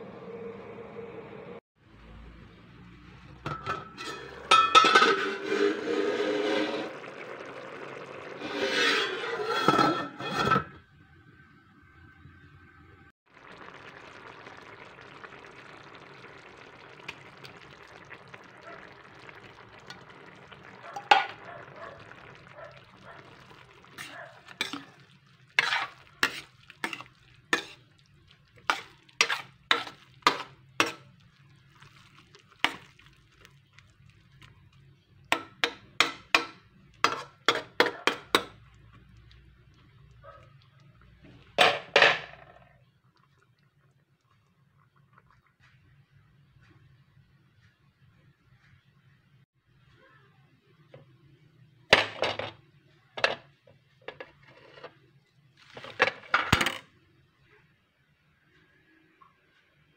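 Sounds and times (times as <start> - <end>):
metal spoon scraping a steel pan: 3.5 - 7.0, 8.4 - 10.8, 25.6 - 27.8, 28.7 - 31.0, 35.4 - 38.5.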